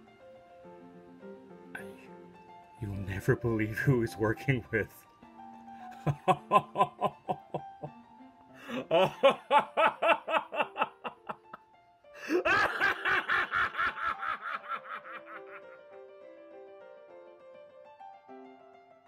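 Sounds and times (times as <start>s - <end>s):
background music: 0.0s - 19.0s
man laughing maniacally: 6.0s - 8.0s, 8.6s - 11.6s, 12.2s - 15.9s.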